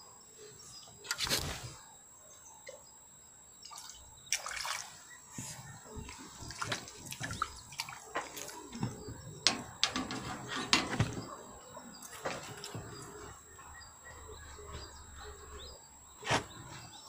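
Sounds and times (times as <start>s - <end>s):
fish splashing at water surface: 3.7s - 5.1s, 6.0s - 9.0s.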